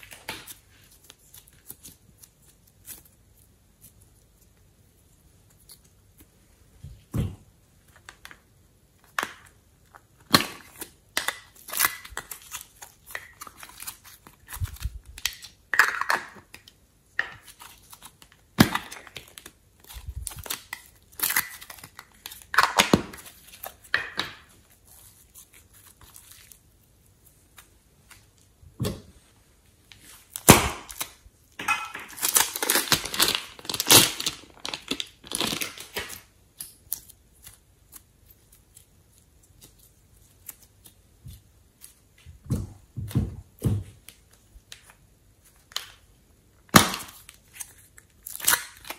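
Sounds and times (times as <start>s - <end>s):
plastic piping bag crinkling: 0.0s - 6.2s, 9.0s - 15.8s, 17.4s - 28.5s, 29.8s - 42.2s.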